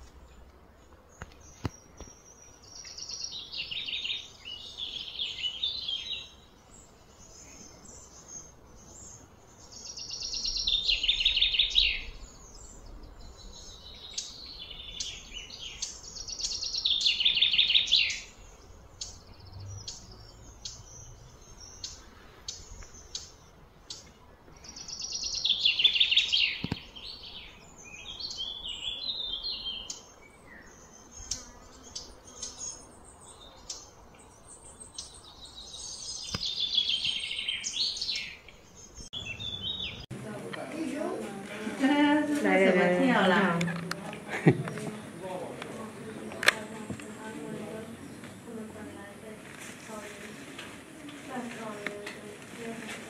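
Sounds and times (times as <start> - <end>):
bird trilling chirps: 7.2 - 40.1.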